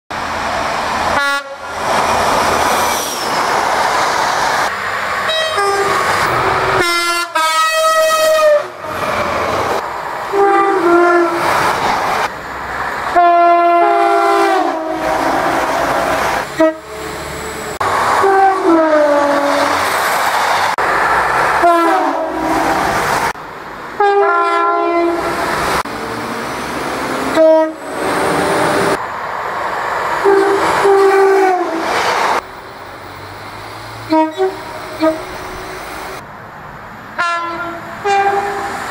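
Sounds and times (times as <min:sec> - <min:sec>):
train rushing on rails: 0:00.1 - 0:38.9
train horns: 0:01.1 - 0:01.8, 0:05.2 - 0:09.0, 0:10.3 - 0:11.6, 0:13.1 - 0:17.2, 0:18.1 - 0:19.8, 0:21.6 - 0:22.8, 0:24.0 - 0:25.4, 0:27.2 - 0:29.0, 0:30.2 - 0:32.0, 0:34.0 - 0:35.8, 0:37.2 - 0:38.9.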